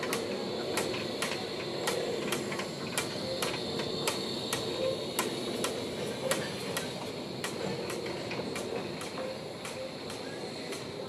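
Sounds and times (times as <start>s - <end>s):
locomotive steam hiss: 0.0s - 11.0s.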